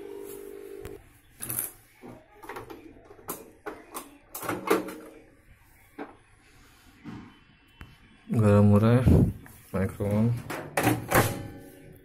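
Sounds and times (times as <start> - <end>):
microwave oven humming: 0.0 - 1.0.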